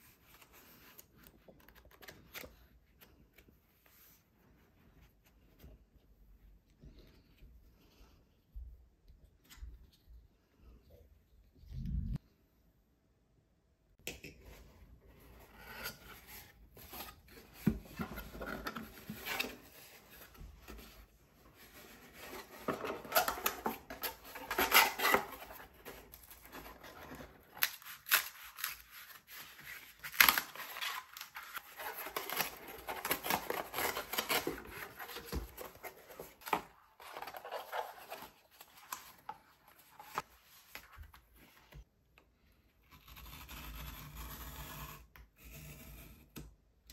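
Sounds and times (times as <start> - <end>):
cardboard crackling and tearing: 22.2 - 39.0.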